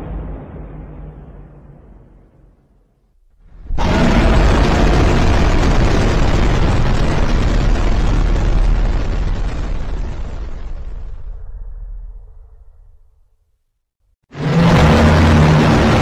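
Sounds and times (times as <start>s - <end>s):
deep rumbling roar: 3.4s - 13.1s, 14.3s - 16.0s.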